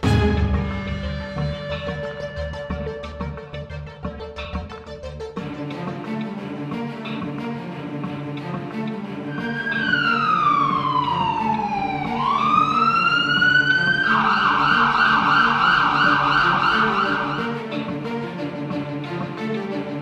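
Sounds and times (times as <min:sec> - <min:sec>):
background music: 0:00.0 - 0:20.0
electronic siren wailing: 0:09.3 - 0:17.7.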